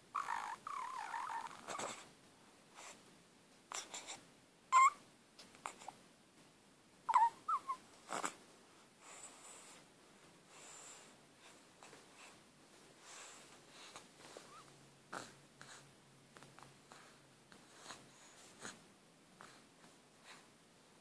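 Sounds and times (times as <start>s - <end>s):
baby squeaks: 0.2s - 1.9s, 4.7s - 5.0s, 7.1s - 7.8s
baby snuffly breaths: 1.6s - 2.1s, 3.7s - 4.2s, 13.0s - 15.9s.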